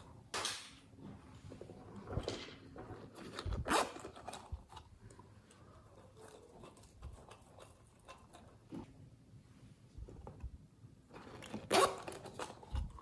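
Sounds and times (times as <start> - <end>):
zipper pulled open: 3.1 - 4.4, 11.2 - 12.6.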